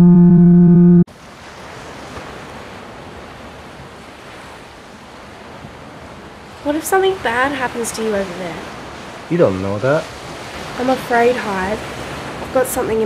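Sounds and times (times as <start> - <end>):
low horn blast: 0.0 - 1.1
ocean surf breaking: 1.1 - 13.0
wind: 1.1 - 13.0.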